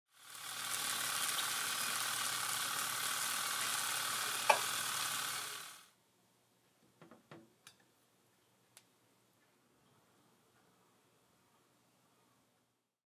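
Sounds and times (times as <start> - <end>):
chicken wings sizzling in oven: 0.1 - 5.8.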